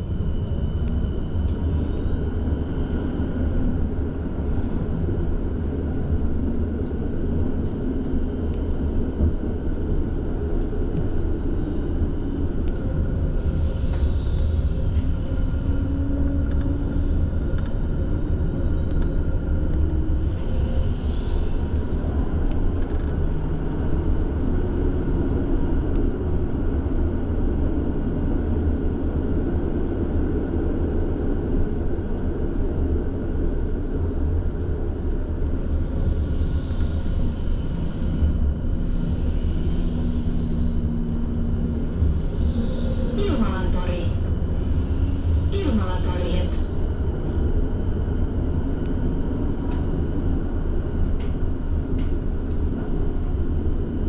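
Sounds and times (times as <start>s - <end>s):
faint hum: 0.0s - 54.0s
tram low rumble: 0.0s - 54.0s.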